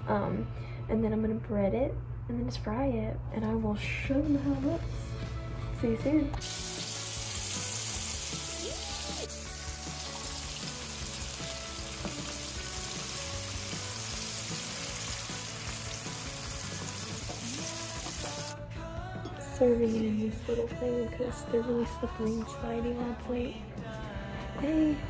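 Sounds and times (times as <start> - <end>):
mushrooms sizzling in oil: 6.4 - 18.5.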